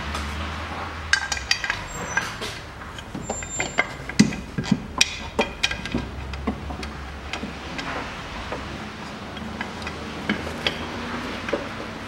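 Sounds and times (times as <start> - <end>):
metal bracket clinks and knocks: 1.1 - 6.9.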